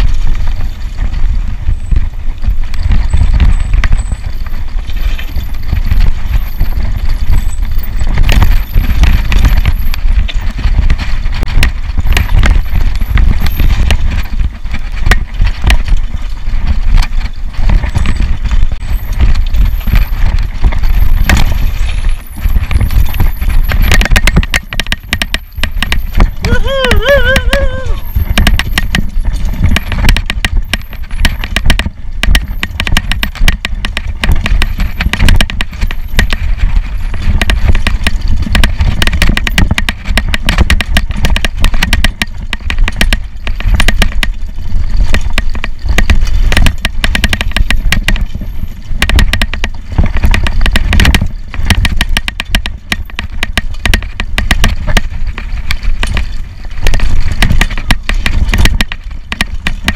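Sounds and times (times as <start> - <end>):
bike frame and chain knocking: 0.0 - 59.9
mountain bike rattling over rocks: 0.0 - 59.9
wind rumble on microphone: 0.0 - 59.9.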